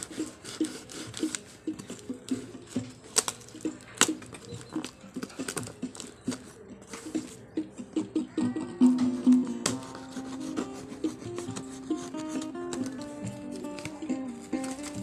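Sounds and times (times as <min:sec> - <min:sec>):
cardboard box rustling: 0:09.6 - 0:15.0
knife cutting packing tape: 0:09.6 - 0:15.0.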